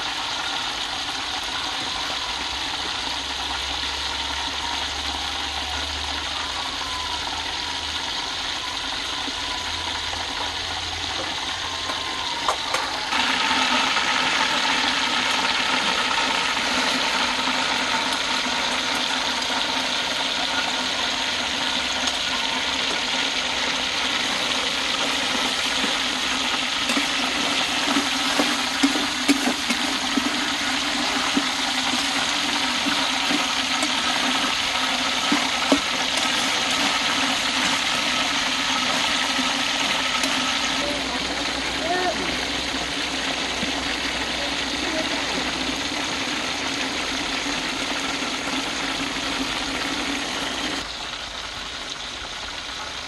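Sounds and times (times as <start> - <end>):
bubbling oil: 0.0 - 53.0
food sizzling in hot oil: 0.0 - 53.0
metal spatula scraping pan: 24.2 - 40.8.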